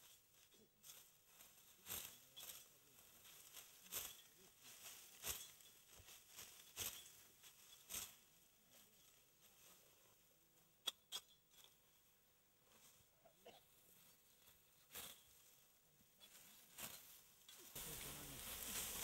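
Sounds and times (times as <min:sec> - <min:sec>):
dry stalks rustling: 0:00.0 - 0:19.0
sickle swishes: 0:16.4 - 0:19.0.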